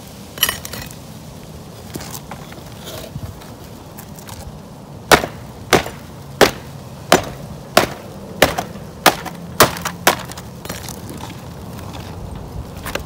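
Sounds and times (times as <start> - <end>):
hammer striking metal pry bar: 5.1 - 10.4.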